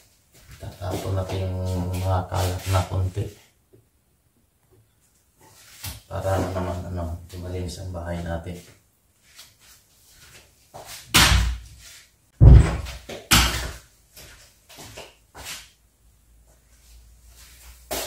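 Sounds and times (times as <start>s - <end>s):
loud thuds: 12.4s - 13.8s.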